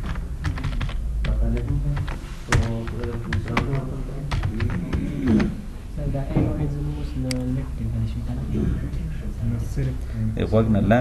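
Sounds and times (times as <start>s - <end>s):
computer keyboard typing: 0.0s - 5.6s.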